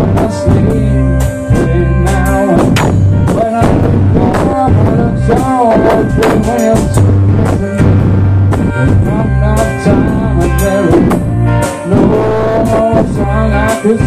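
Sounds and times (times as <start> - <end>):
bass: 0.0 - 14.0
bending lead melody: 0.0 - 14.0
drum kit beat: 0.0 - 14.0
guitar: 0.0 - 14.0.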